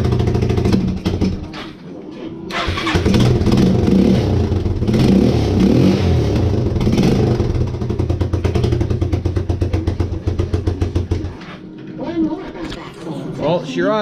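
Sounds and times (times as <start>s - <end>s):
quad engine surging and idling: 0.0s - 1.4s, 2.6s - 11.3s.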